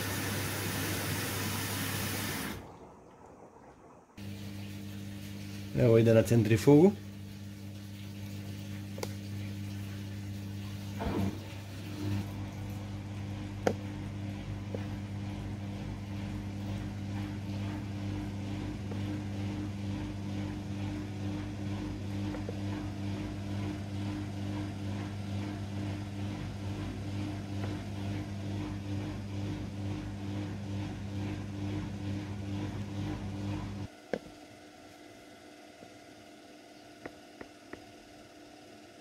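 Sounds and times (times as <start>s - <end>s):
washing machine motor humming: 0.0s - 39.0s.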